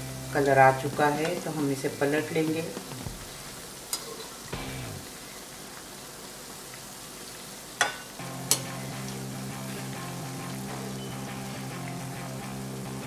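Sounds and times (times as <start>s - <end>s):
food deep-frying in hot oil: 0.0s - 13.0s
background music: 4.5s - 5.2s, 8.2s - 13.0s
metal spoon clinking on pan: 7.8s - 8.7s.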